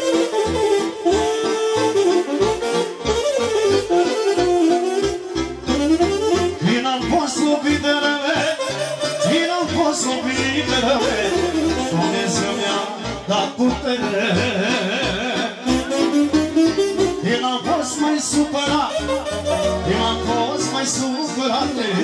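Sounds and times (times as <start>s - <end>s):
accordion playing fast runs: 0.0s - 22.0s
steady bass beat: 9.7s - 20.9s.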